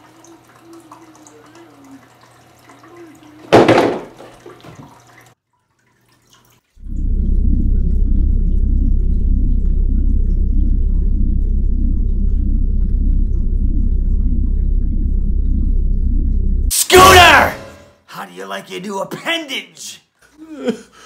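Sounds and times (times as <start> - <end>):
loud low rumbling drone: 6.8 - 17.8.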